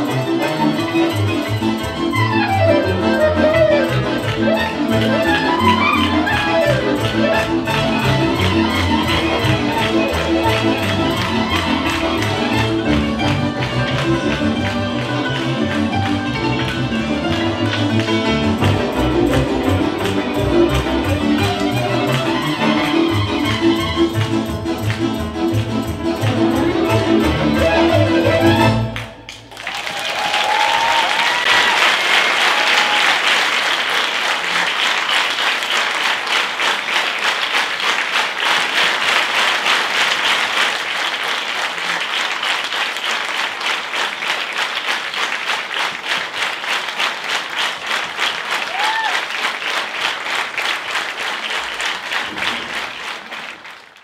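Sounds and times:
cimbalom folk band: 0.0 - 29.4
audience applause: 0.0 - 54.0
rhythmic clapping in unison: 0.0 - 54.0
audience cheering: 28.4 - 34.6, 47.8 - 54.0.

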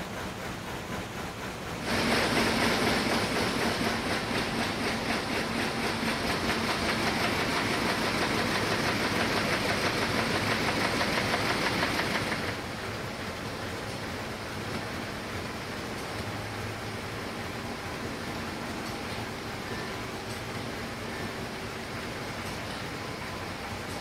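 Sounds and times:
machine clattering: 0.0 - 12.7.

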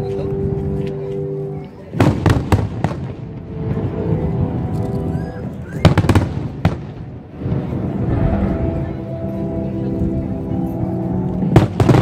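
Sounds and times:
fireworks bangs: 2.0 - 4.7, 5.6 - 8.6, 11.5 - 12.0.

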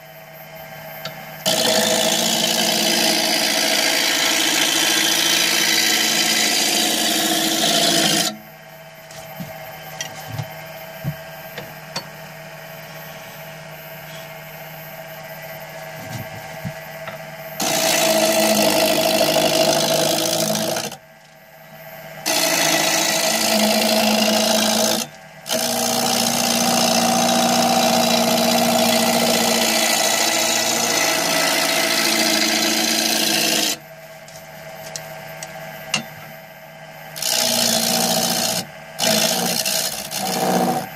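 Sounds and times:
tool cutting spinning wood: 1.4 - 8.4, 17.5 - 21.0, 22.2 - 33.8, 37.2 - 40.9
lathe motor hum: 1.5 - 8.4, 17.0 - 21.0, 22.2 - 33.8, 37.2 - 40.9.

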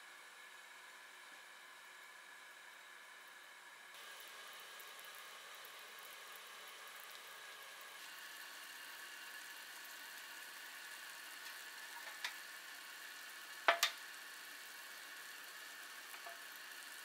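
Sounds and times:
water simmering in a frying pan: 0.1 - 17.0
metal tongs clicking on pan: 13.7 - 14.0.

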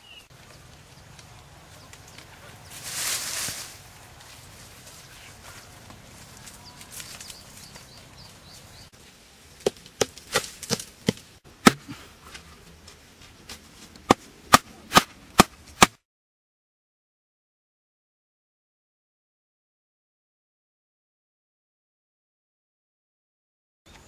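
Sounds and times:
hammering wooden stakes: 9.6 - 12.0, 14.0 - 16.0.

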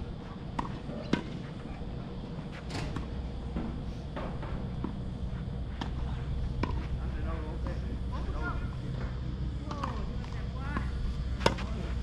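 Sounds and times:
tennis ball bouncing: 0.5 - 1.4, 10.8 - 11.7.

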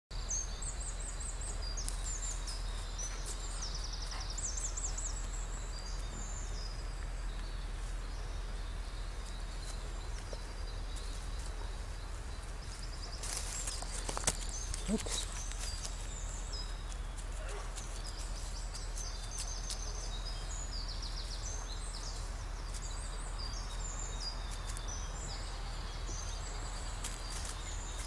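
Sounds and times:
rustling in dry leaves: 0.2 - 28.0
songbirds trilling: 0.2 - 28.0.

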